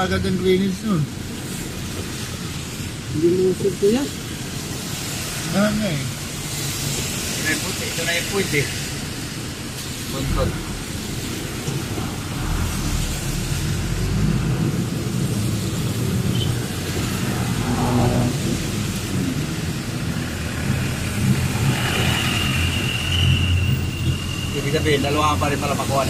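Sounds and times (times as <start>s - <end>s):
tyres on wet road: 0.0s - 26.0s
truck engine rumble: 5.8s - 26.0s.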